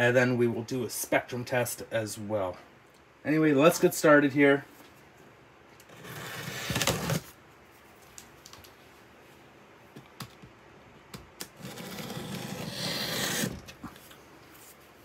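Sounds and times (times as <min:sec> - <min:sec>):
blade slitting packing tape: 0:05.8 - 0:07.3, 0:11.4 - 0:13.8.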